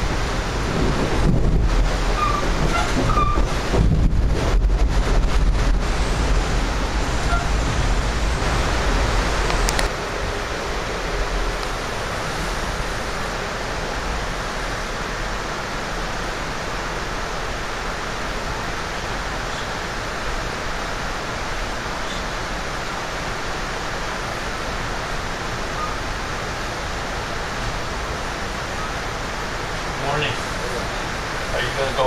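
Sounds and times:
low rumble with clicks: 0.0s - 10.4s
train wheels rushing on rails: 0.0s - 32.0s.

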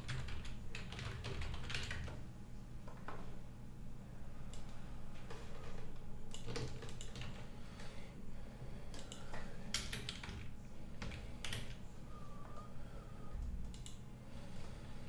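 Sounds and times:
computer keyboard typing: 0.0s - 2.2s, 5.3s - 7.5s, 8.9s - 11.8s.

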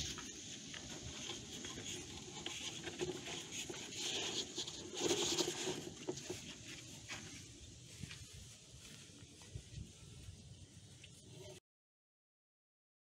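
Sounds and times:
filter scraping along plastic: 0.8s - 8.3s.

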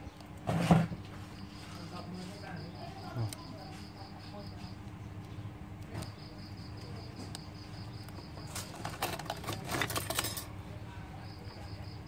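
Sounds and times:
steady low hum: 0.0s - 12.0s
small clicks and rustles: 7.2s - 10.5s.

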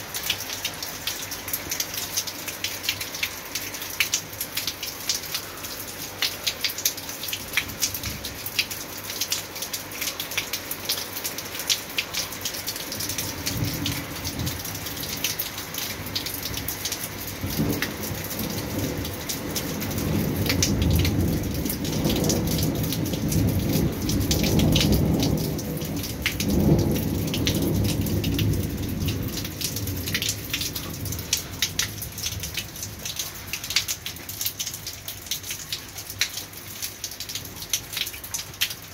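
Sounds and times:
close raindrops ticking: 0.0s - 38.9s
heavy rain falling: 0.0s - 38.9s
low roll of thunder: 17.4s - 32.8s.

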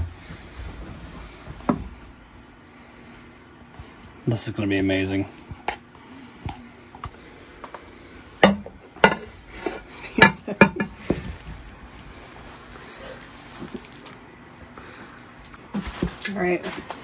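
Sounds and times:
saucepan and utensil clanking: 8.4s - 11.2s.

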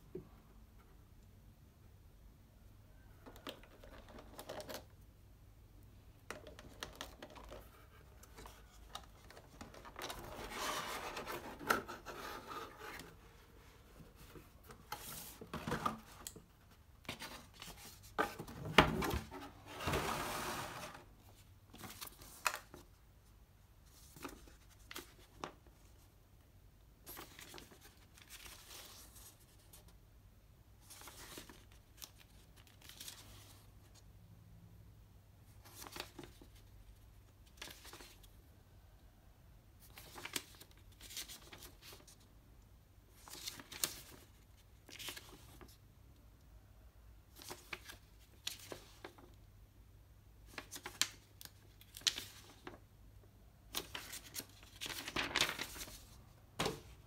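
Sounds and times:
paper rustling: 6.4s - 22.9s, 43.1s - 45.8s, 50.5s - 52.8s, 53.7s - 57.0s.

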